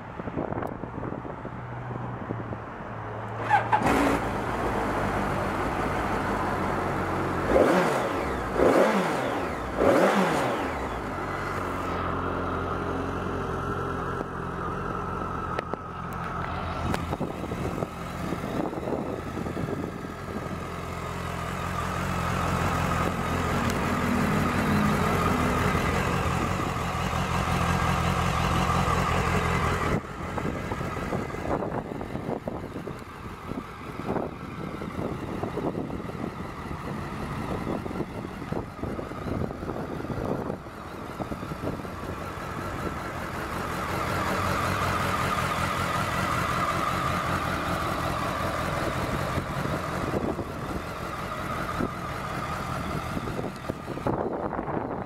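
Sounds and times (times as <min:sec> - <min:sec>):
motorcycle engine idling and revving: 0:00.0 - 0:55.0.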